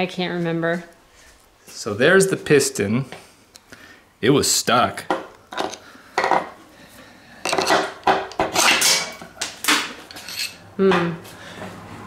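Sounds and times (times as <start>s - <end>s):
metal tools clinking and clattering: 7.4s - 10.6s.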